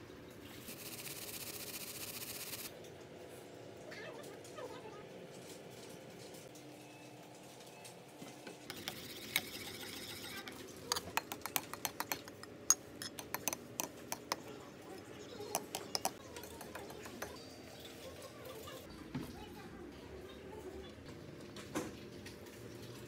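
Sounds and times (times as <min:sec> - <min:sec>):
utensil scraping ceramic bowl: 0:08.7 - 0:14.5, 0:15.5 - 0:17.4
utensil clinking against bowl: 0:08.7 - 0:14.6, 0:15.4 - 0:17.6.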